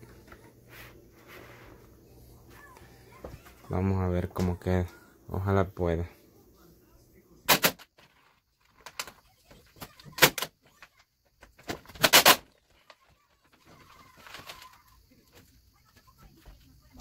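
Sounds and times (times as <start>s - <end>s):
vinyl film crackling and rustling: 7.9s - 17.0s.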